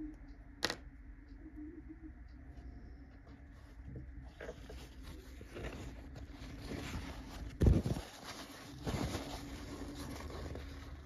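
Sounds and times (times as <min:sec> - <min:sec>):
paper towel rustling: 0:03.5 - 0:11.0.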